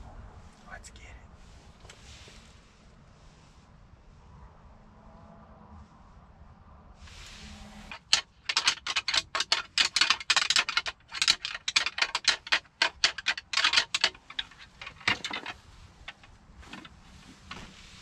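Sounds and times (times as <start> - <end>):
deer antlers rattling together: 7.2 - 18.0.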